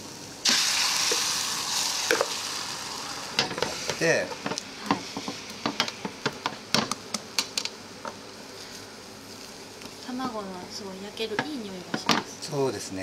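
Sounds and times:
egg sizzling in a pan: 0.0s - 10.6s
chopsticks tapping and scraping pan: 3.4s - 8.2s.

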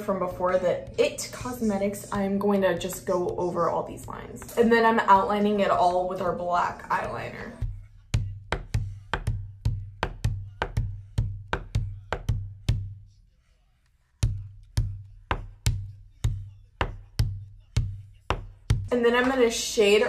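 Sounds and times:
music with drum beat and bass: 6.9s - 13.2s, 14.2s - 19.0s.

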